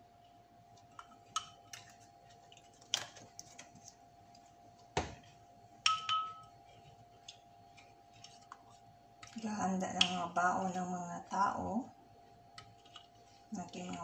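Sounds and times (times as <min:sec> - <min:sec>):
faint steady hum: 0:00.0 - 0:14.0
spatula clinking glass bowl: 0:05.8 - 0:09.4.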